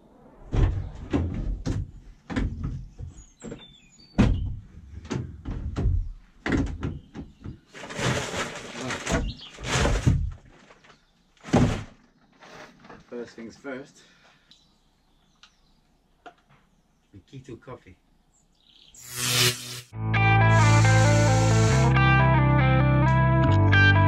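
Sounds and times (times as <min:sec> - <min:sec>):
fabric bag scraping: 0:07.7 - 0:08.9.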